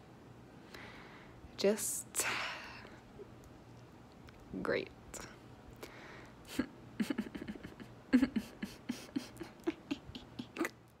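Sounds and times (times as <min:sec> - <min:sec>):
person making mouth clicks: 0:08.5 - 0:11.0.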